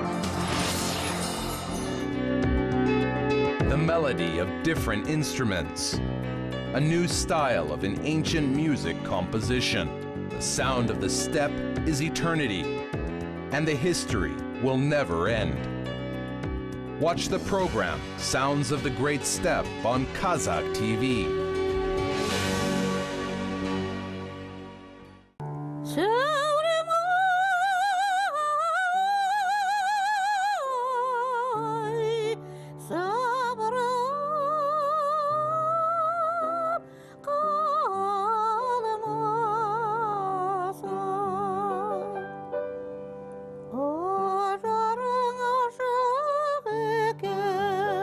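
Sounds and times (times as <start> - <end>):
instrumental accompaniment: 5.9 - 26.0
woman singing operatically: 25.9 - 42.2, 43.8 - 48.0.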